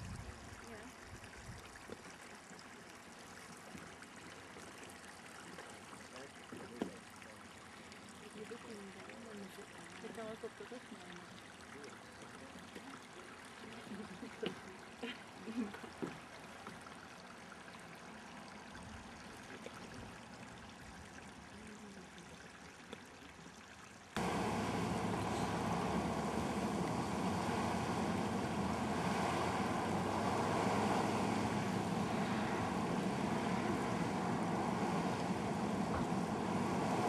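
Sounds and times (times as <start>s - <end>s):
water trickling: 0.0s - 37.0s
geyser water rushing: 24.2s - 37.0s.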